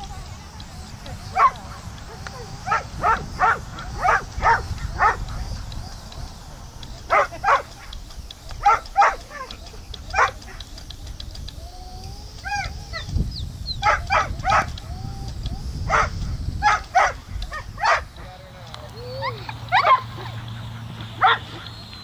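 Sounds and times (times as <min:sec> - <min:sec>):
dog barking: 0:01.3 - 0:05.3, 0:07.1 - 0:07.9, 0:08.6 - 0:09.5, 0:10.1 - 0:10.5, 0:13.8 - 0:14.8, 0:15.9 - 0:18.1, 0:19.2 - 0:20.4, 0:21.1 - 0:21.7
dog whining and yipping: 0:01.3 - 0:05.3, 0:08.6 - 0:10.6, 0:11.7 - 0:13.1, 0:18.8 - 0:20.4, 0:21.1 - 0:21.9.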